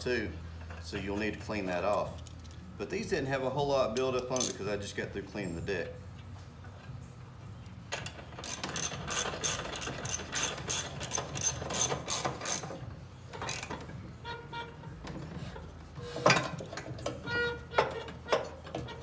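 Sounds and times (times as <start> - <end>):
socket ratchet clicking: 4.0 - 4.6, 8.0 - 12.7, 13.4 - 13.8.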